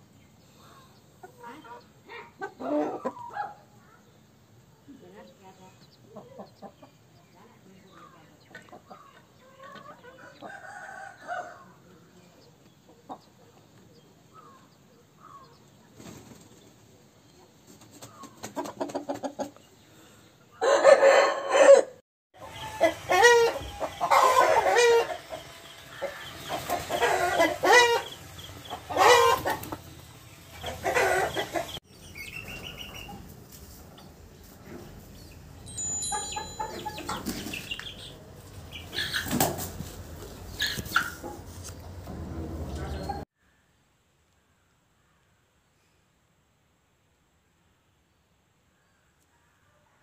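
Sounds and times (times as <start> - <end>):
chickens clucking softly: 0.6 - 4.1, 4.9 - 16.6, 17.3 - 19.8, 22.4 - 29.9, 30.5 - 33.3
loud wavering chicken calls: 20.5 - 33.2, 38.7 - 41.5.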